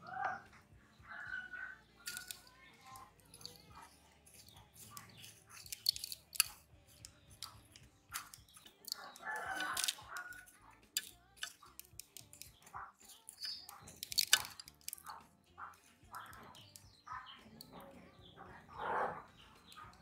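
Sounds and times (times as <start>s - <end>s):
breadcrumb coating crackling: 1.8s - 17.9s
light tong clicks: 4.9s - 15.2s.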